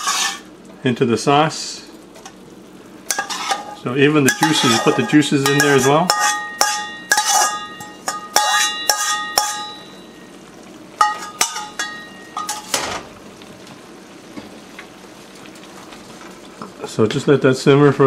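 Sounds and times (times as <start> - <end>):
spatula scraping metal wok: 0.0 - 0.5, 3.1 - 9.8
sauce simmering hiss: 0.0 - 18.0.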